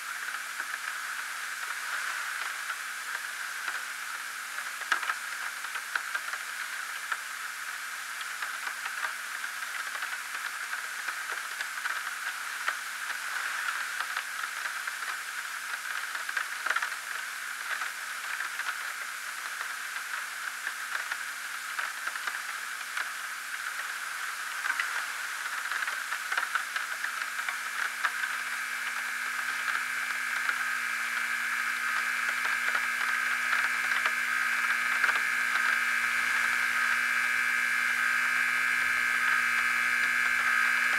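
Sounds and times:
faint crackles: 0:00.0 - 0:40.9
static hiss: 0:00.0 - 0:40.9.

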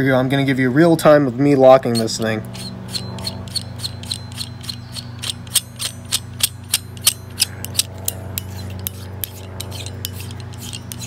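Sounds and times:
steady low hum: 0:00.0 - 0:11.0
carabiner gate metallic clicks: 0:02.9 - 0:11.0.

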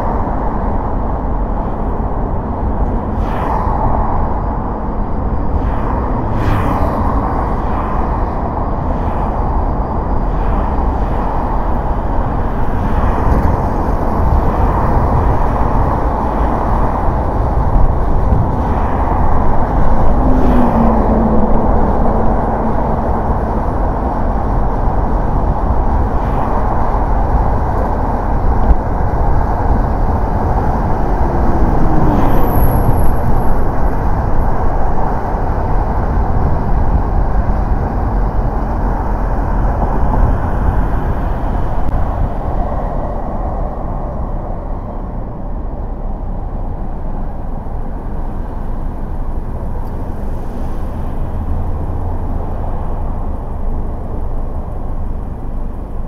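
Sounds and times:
car engine hum: 0:00.0 - 0:56.0
road and tyre noise: 0:00.0 - 0:56.0
falling tone: 0:30.5 - 0:33.7.

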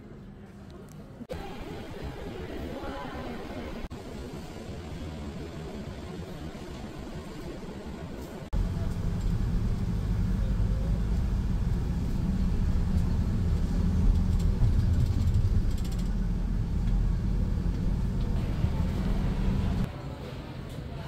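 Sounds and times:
road vehicle rumble: 0:03.9 - 0:19.9
low engine hum: 0:08.5 - 0:19.9.

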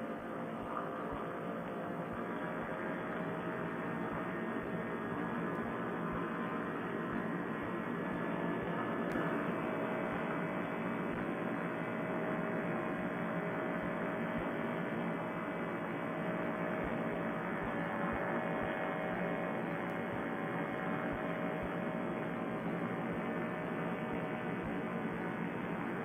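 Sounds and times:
paramotor engine droning: 0:00.0 - 0:26.0.

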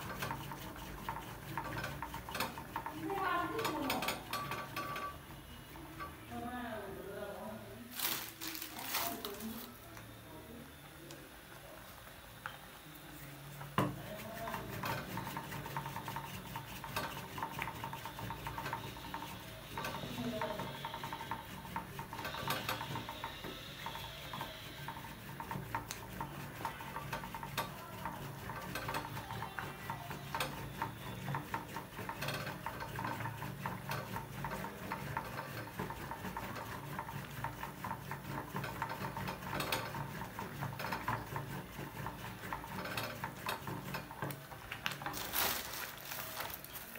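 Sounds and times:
wooden stick knocking in metal pot: 0:00.0 - 0:05.2.

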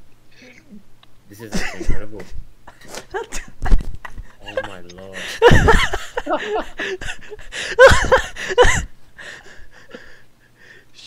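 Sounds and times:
young men yelping and laughing: 0:01.4 - 0:10.1.

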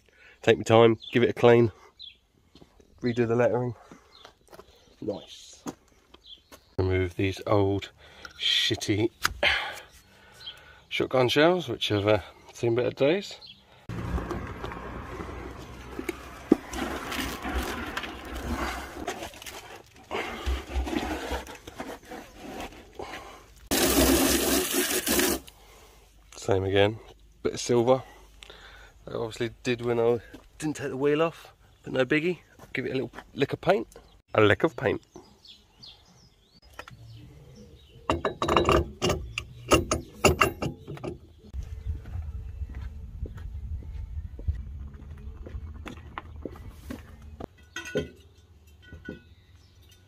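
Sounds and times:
wet scrubbing through soapy foam: 0:23.7 - 0:25.5
metal spacer knocking on wheel hub: 0:38.1 - 0:41.3.

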